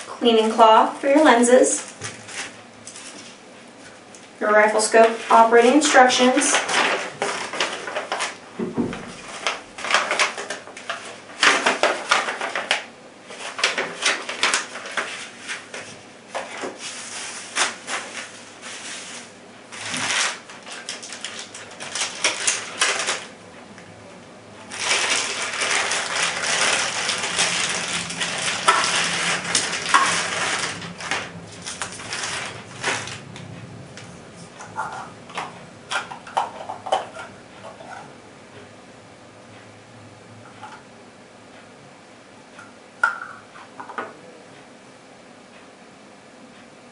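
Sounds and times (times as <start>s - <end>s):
plastic and paper crinkling: 1.7s - 3.4s, 4.9s - 8.4s, 9.0s - 23.3s, 24.7s - 33.4s.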